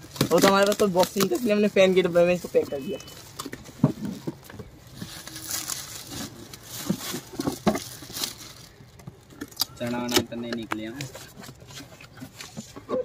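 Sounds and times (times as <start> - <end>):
foil gift wrap crinkling and tearing: 0.0 - 2.4, 4.8 - 11.4.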